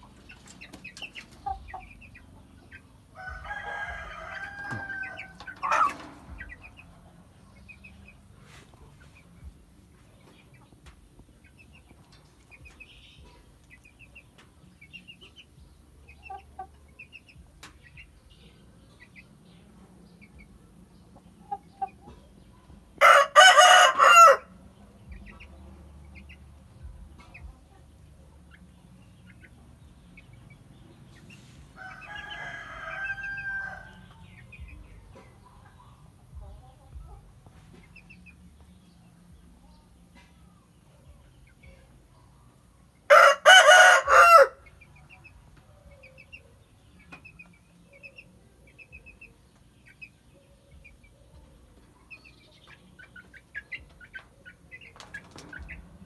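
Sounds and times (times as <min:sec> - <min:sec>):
rooster crowing: 0:03.2 - 0:05.9, 0:23.0 - 0:24.5, 0:31.8 - 0:33.9, 0:43.1 - 0:44.6
rooster clucking: 0:03.5 - 0:06.7.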